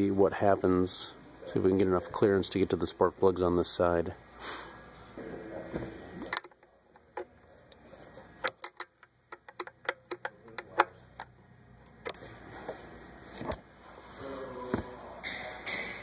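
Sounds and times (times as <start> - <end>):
wrench metal clicks: 8.4 - 11.3.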